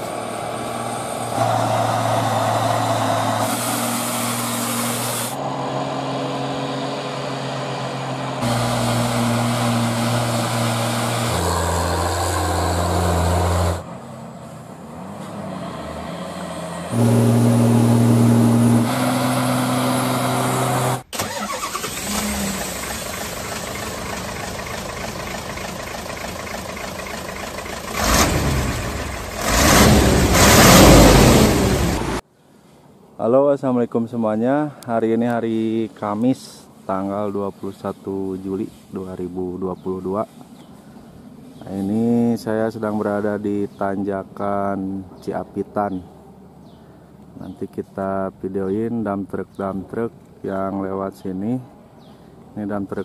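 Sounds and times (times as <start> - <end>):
truck diesel engine droning: 0.0 - 32.2.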